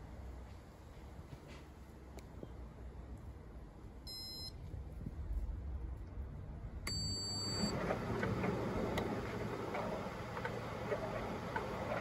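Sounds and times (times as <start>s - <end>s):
control panel beeps: 4.1s - 4.5s, 6.9s - 7.7s
tumble dryer running hum: 7.7s - 12.0s.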